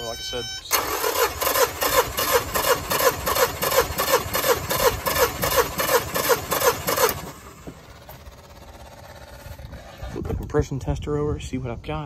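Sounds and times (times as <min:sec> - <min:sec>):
outboard engine cranking: 0:00.7 - 0:10.4.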